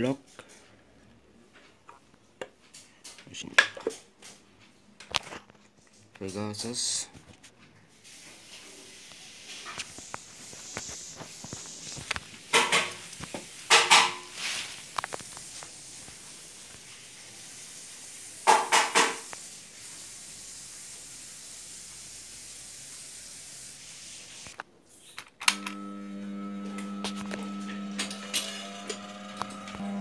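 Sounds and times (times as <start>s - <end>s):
sewing machine motor hum: 25.5s - 30.0s.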